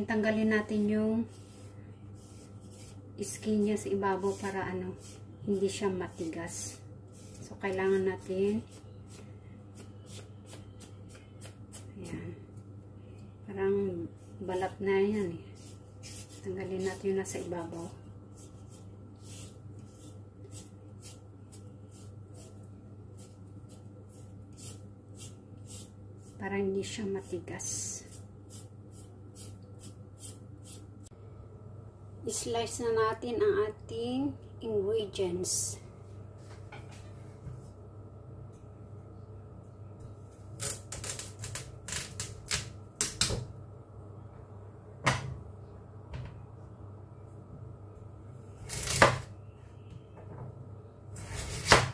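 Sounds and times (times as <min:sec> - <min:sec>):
low steady hum: 0:00.0 - 0:51.9
vegetable peeler scraping celery: 0:00.6 - 0:09.2, 0:09.8 - 0:12.1, 0:14.5 - 0:22.6, 0:23.2 - 0:26.4, 0:48.6 - 0:49.2.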